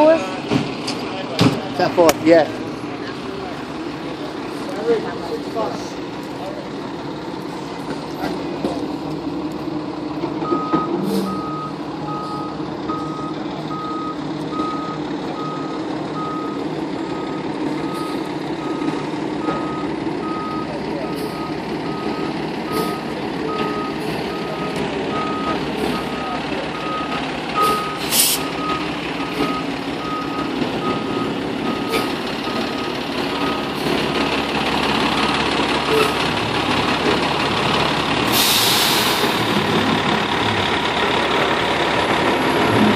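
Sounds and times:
truck engine running: 0.0s - 42.9s
reversing alarm beeping: 10.4s - 33.8s.

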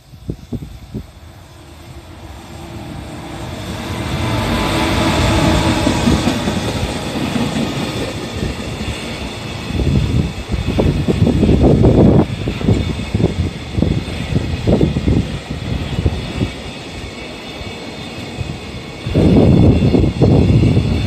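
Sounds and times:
freight train passing: 0.0s - 21.0s
wheels clacking over rail joints: 2.9s - 9.9s.

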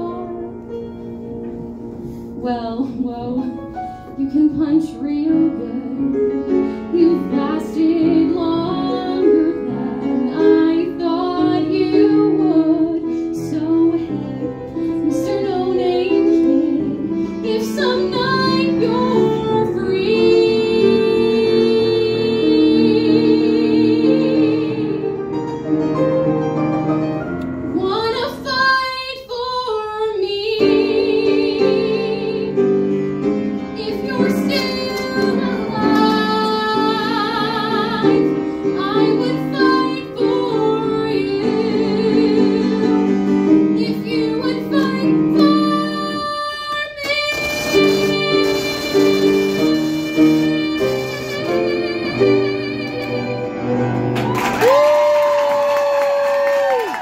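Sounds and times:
woman singing with vibrato: 7.0s - 25.1s, 33.8s - 43.2s, 43.8s - 53.6s
instrumental accompaniment: 30.2s - 56.7s.

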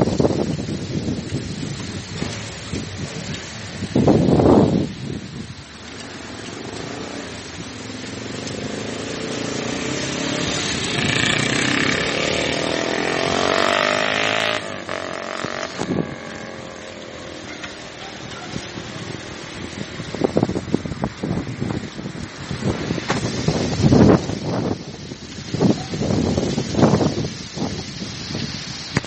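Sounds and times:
motor vehicle passing: 5.9s - 20.3s.

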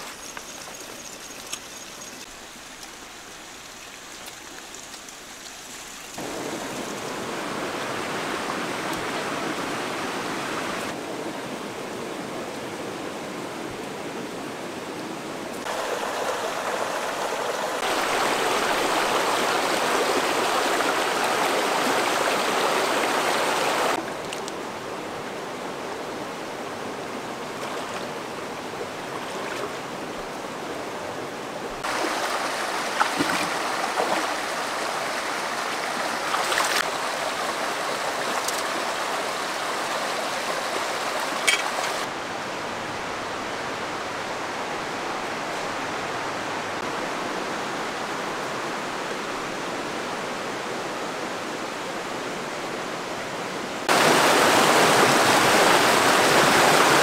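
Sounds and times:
river water rushing over rocks: 0.0s - 11.8s, 15.6s - 57.0s
sharp knocks or splashes: 31.8s - 34.4s.

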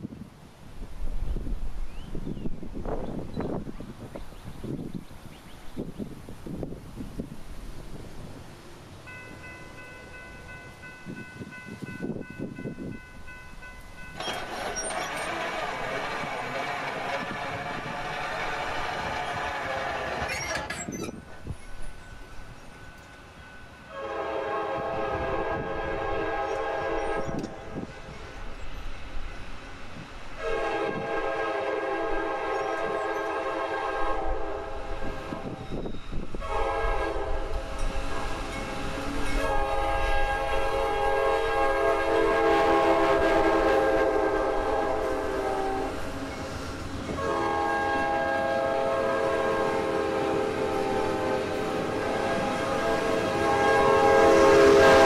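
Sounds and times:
low rumble of moving train: 0.0s - 55.0s
locomotive air horn blasts: 14.3s - 20.4s, 23.9s - 27.8s, 30.4s - 35.8s, 36.4s - 46.0s, 47.1s - 55.0s.

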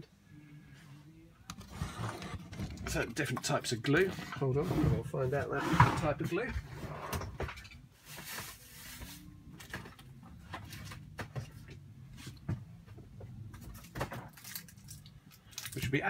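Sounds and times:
knocks and clatter of rummaging: 5.7s - 7.8s.

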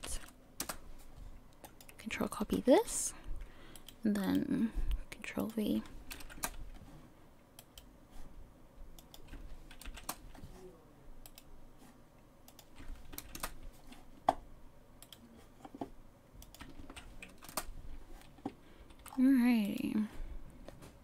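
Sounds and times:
computer keyboard keystrokes: 0.0s - 0.8s, 5.4s - 6.8s, 9.0s - 10.4s, 11.2s - 11.5s, 12.5s - 13.6s, 16.4s - 19.9s.

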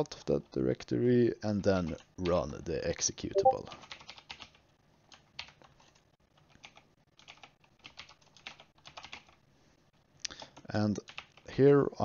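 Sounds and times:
typing on computer keyboard: 3.4s - 9.4s, 10.4s - 11.5s.

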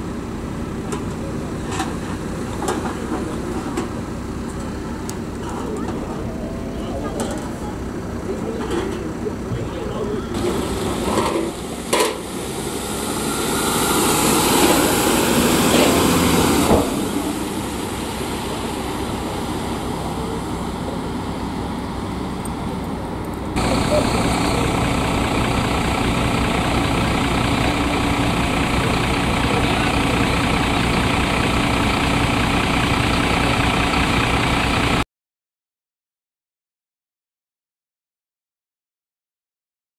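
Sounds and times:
vehicle engine idling: 0.0s - 35.0s
van driving past: 10.3s - 35.0s.

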